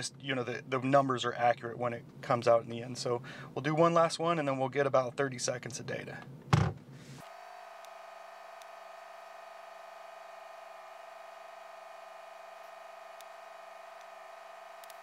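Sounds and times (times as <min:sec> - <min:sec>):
car engine idling: 0:07.4 - 0:15.0.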